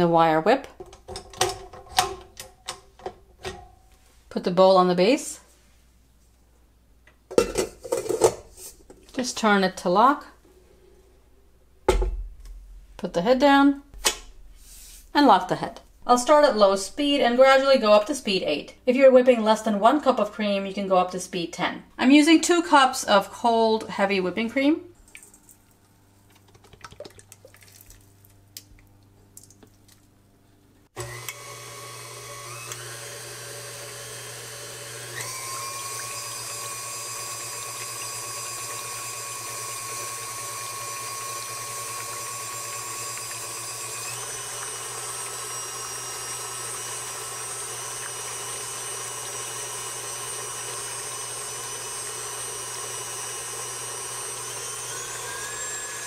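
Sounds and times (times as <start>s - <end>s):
stand mixer motor whine: 31.0s - 56.0s.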